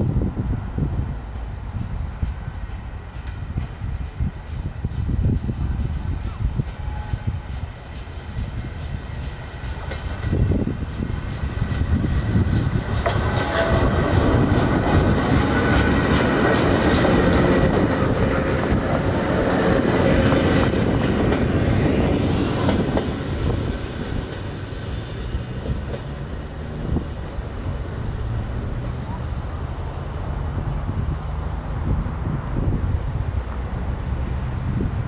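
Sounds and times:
electric train rolling past: 0.0s - 35.0s
wheels clicking over rail joints: 7.4s - 28.1s.

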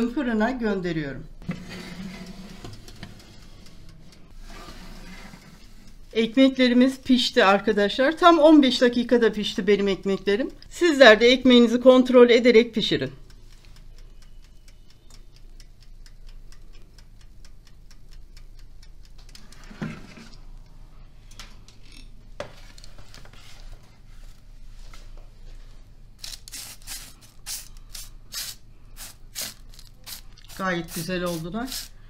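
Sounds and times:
bread crust crackling: 12.7s - 19.8s.

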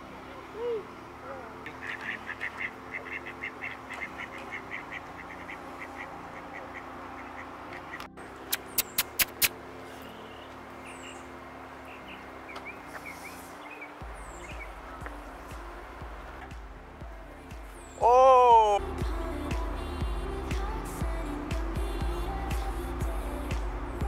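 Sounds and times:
steady low hum: 0.0s - 24.0s
duck quacking: 1.7s - 8.1s
sharp loud clicks: 8.5s - 9.6s
faint bird chirps: 9.9s - 15.9s.

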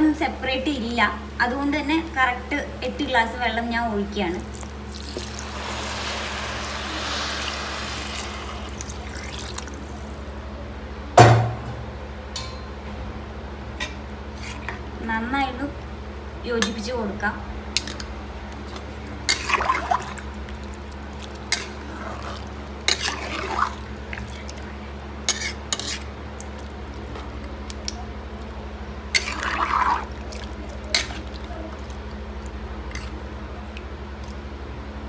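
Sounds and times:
steady low hum: 0.0s - 35.0s
liquid sloshing in pot: 4.4s - 10.4s, 18.6s - 34.4s.

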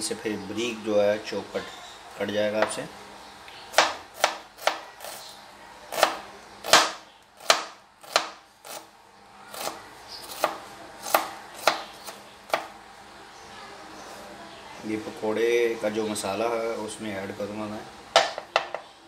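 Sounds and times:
knife chopping on cutting board: 3.7s - 5.2s, 5.9s - 8.8s, 9.5s - 12.7s.

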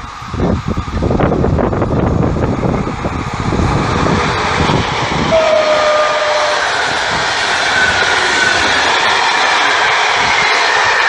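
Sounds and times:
heavy rumble: 0.0s - 11.0s
train passing at speed: 0.0s - 11.0s
brief falling tone: 5.3s - 6.7s.

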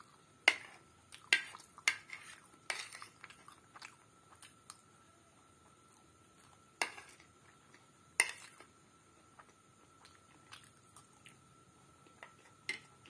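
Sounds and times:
quiet chewing: 1.1s - 6.6s, 8.5s - 12.9s.

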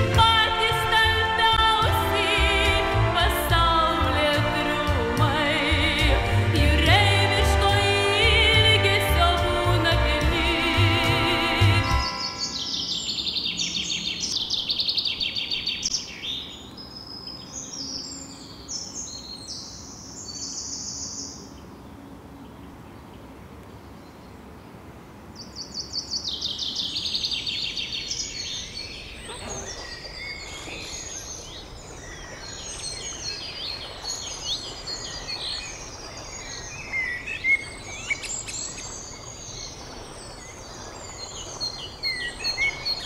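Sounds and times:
birds chirping: 11.5s - 24.4s, 25.4s - 43.0s.

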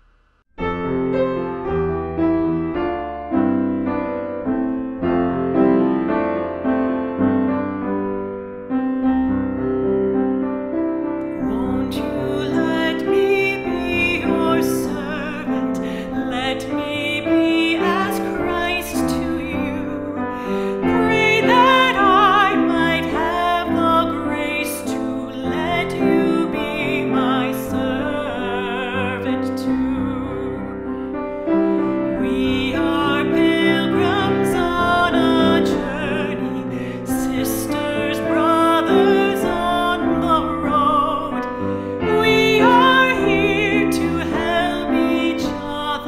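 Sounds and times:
piano playing: 0.5s - 46.0s
woman singing with vibrato: 11.4s - 46.0s.

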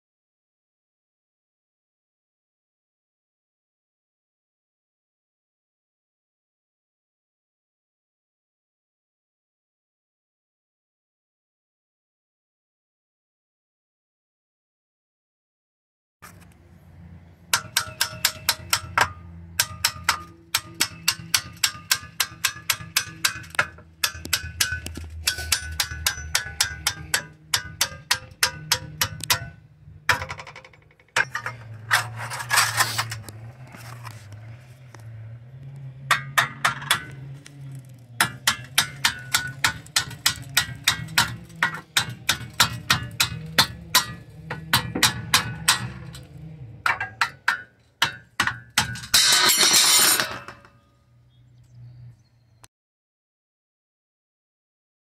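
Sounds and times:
hammer tapping metal: 17.5s - 31.7s, 38.2s - 50.7s
scraping noise: 30.6s - 35.3s.

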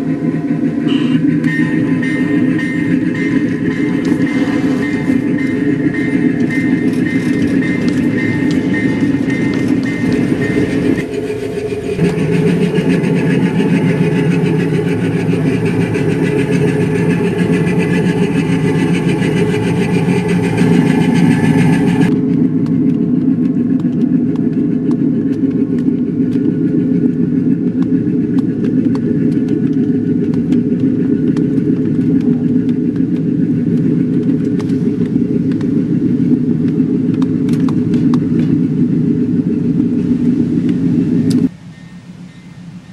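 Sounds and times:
small diesel engine running: 0.0s - 42.9s
train wheels ticking: 0.0s - 42.9s.

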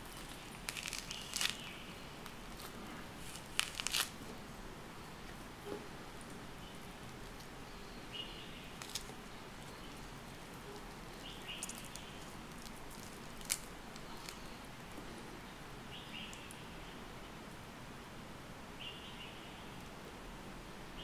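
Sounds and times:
low background hiss: 0.0s - 21.0s
fingers picking orange pith: 8.8s - 14.5s.

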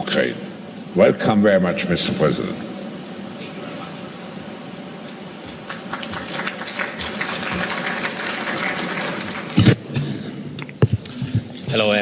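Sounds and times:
audience applauding: 5.5s - 9.8s.

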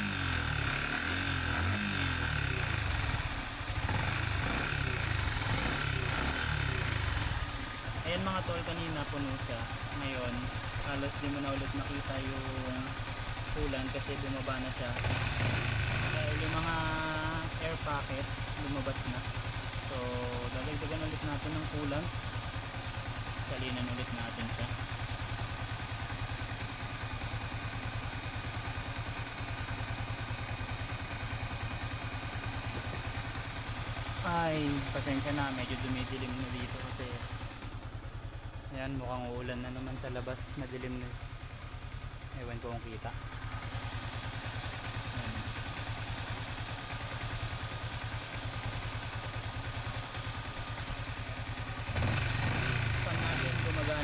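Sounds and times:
motorcycle engine idling: 0.0s - 54.0s.

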